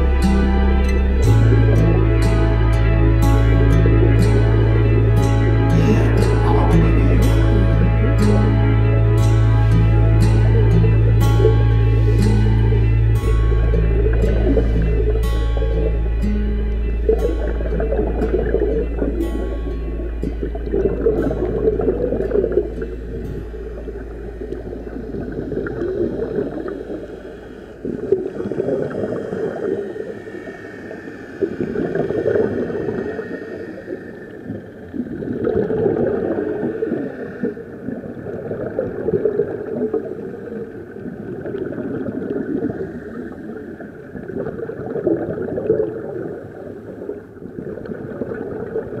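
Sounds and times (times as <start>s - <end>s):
muffled underwater rush: 0.0s - 49.0s
air bubbling underwater: 1.3s - 37.2s.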